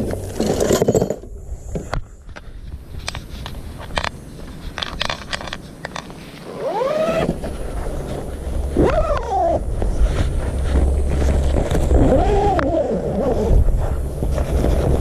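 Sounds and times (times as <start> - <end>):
wind rumble on microphone: 0.0 - 15.0
tent fabric rustling: 5.6 - 15.0
animal calling: 8.8 - 9.7.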